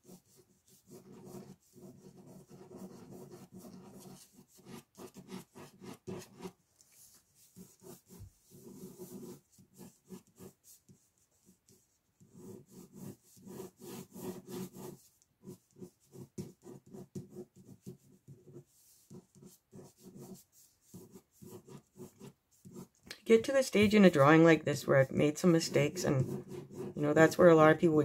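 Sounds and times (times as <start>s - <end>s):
ballpoint pen scratching on paper: 0.0s - 28.0s.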